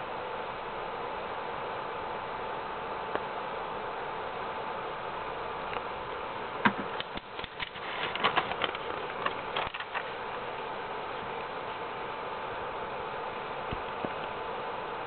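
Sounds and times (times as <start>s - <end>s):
steady hiss: 0.0s - 15.0s
page turning: 7.4s - 10.1s
paper crackling and rustling: 7.4s - 10.2s.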